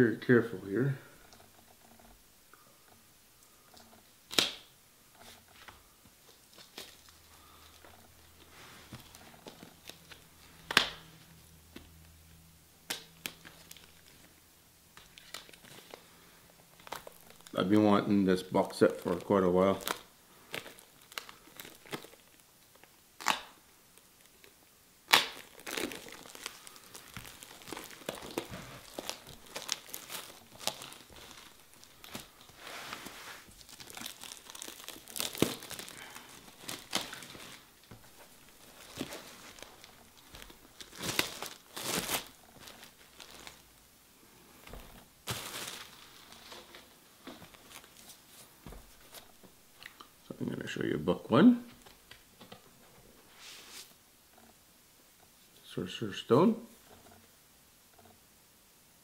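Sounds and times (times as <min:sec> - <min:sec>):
plastic shrink wrap crinkling and tearing: 0:03.7 - 0:12.2, 0:12.8 - 0:43.8, 0:44.6 - 0:50.1
plastic wrap snapping: 0:04.3 - 0:04.7, 0:06.3 - 0:11.9, 0:12.8 - 0:14.3, 0:14.9 - 0:16.0, 0:16.7 - 0:17.6, 0:18.9 - 0:23.6, 0:24.2 - 0:32.6, 0:33.5 - 0:43.7, 0:44.6 - 0:48.1.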